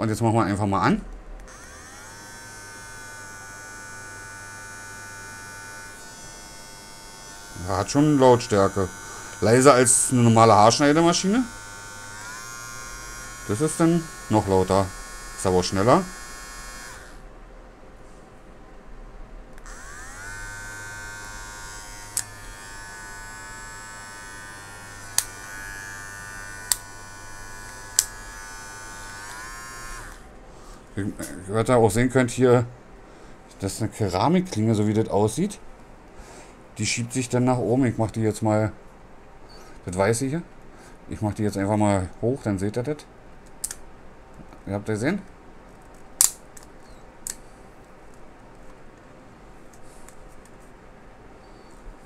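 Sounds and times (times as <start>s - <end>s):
hair clipper motor buzzing: 1.5s - 17.2s, 19.6s - 30.3s
sharp clicks: 46.2s - 47.4s.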